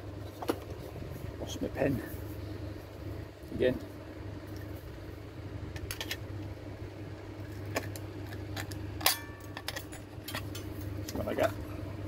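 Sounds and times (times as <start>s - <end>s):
low background hum: 0.0s - 12.0s
metallic ring of sheet: 9.0s - 10.6s.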